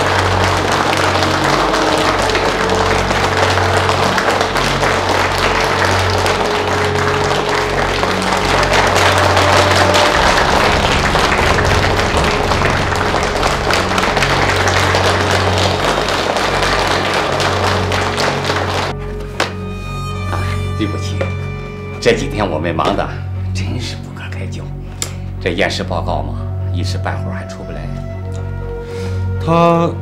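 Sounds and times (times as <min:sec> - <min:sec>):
audience applauding: 0:00.0 - 0:22.0
background music with low notes: 0:00.0 - 0:30.0.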